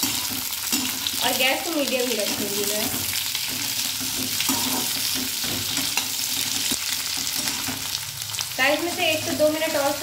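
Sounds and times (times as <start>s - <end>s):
okra sizzling in hot oil: 0.0s - 10.0s.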